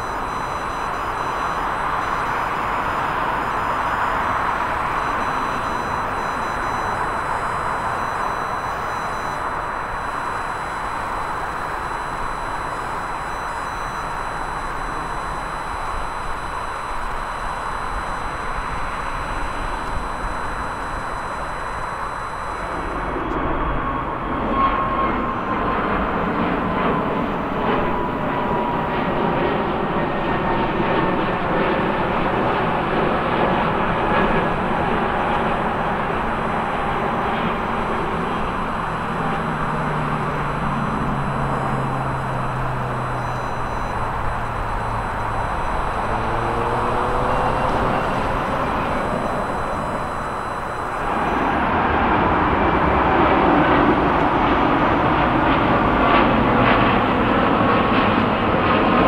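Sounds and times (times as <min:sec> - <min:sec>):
jet engines roaring with whine: 0:00.0 - 0:59.0
departing jet roar: 0:22.6 - 0:59.0.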